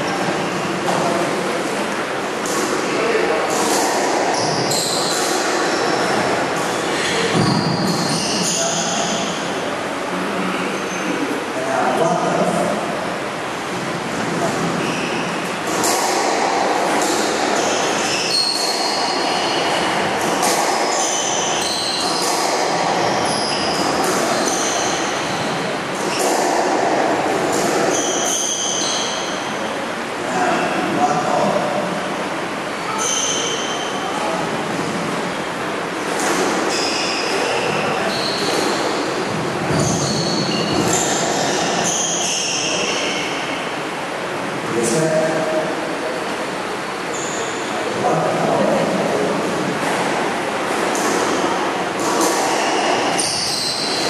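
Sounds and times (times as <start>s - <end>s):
steady background noise: 0.0s - 54.0s
shoes squeaking on court floor: 20.5s - 26.5s, 52.0s - 54.0s.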